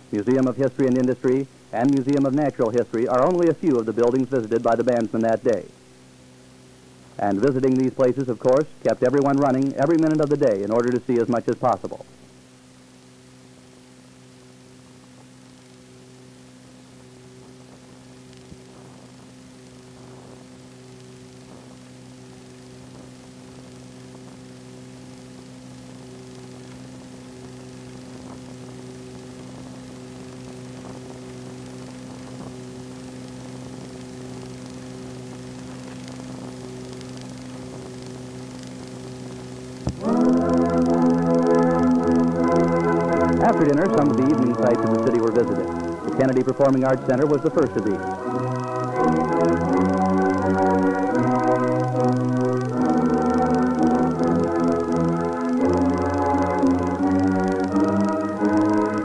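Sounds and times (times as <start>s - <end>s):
electrical mains hum: 0.0s - 59.0s
music: 40.0s - 59.0s.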